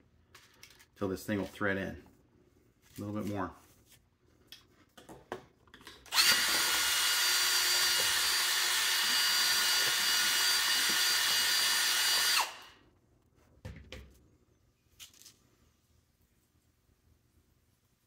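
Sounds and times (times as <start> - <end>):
cordless drill whining: 6.1 - 12.8.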